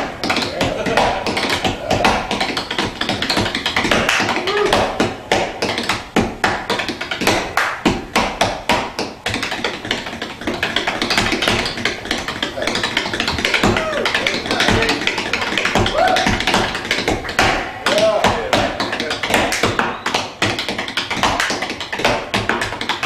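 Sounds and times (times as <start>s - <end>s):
tap shoes tapping: 0.0s - 23.0s.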